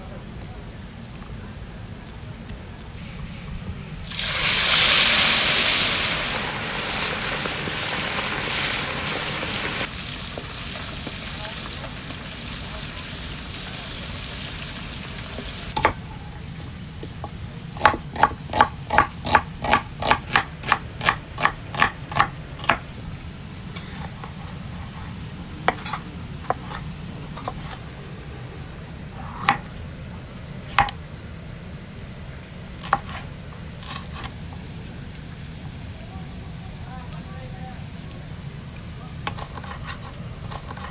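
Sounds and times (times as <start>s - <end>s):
knife chopping on wooden board: 15.8s - 16.0s, 17.8s - 22.8s, 29.2s - 29.7s, 30.7s - 31.0s, 32.8s - 33.2s, 39.3s - 40.9s.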